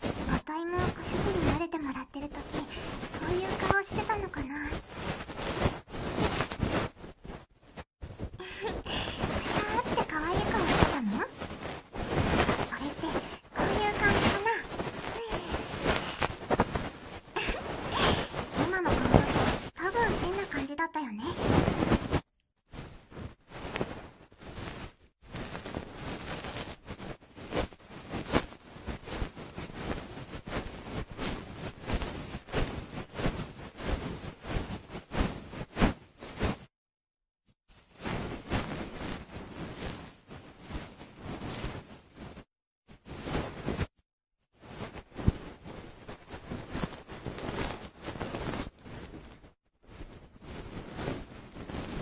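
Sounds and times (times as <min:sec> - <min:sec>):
soft brushing and rustling at ear: 0:00.0 - 0:20.6, 0:21.4 - 0:36.7, 0:37.7 - 0:44.0, 0:44.6 - 0:52.0
fluffy rubbing against microphone: 0:00.0 - 0:36.7, 0:37.7 - 0:43.9, 0:44.6 - 0:52.0.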